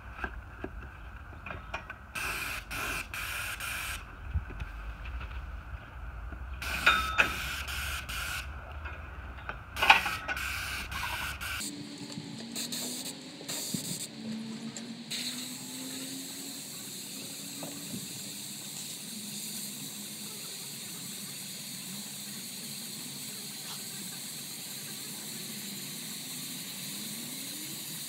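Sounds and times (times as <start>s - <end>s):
paint sprayer hissing: 2.2s - 4.1s, 6.6s - 8.6s, 9.8s - 14.2s, 15.1s - 28.0s.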